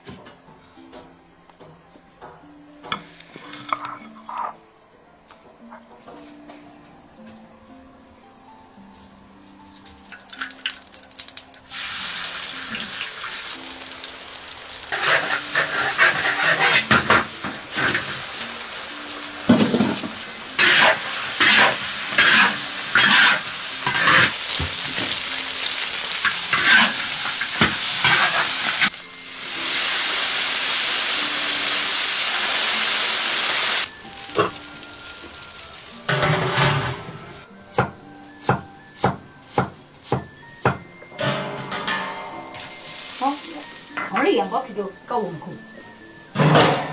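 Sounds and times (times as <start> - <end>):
metal spatula scraping wok: 3.2 - 4.6, 14.8 - 18.4, 20.6 - 24.6, 25.7 - 28.9, 36.1 - 37.2
liquid sizzling in hot wok: 8.3 - 39.0, 41.3 - 44.8
meat sizzling in a wok: 8.8 - 39.0, 42.5 - 44.7.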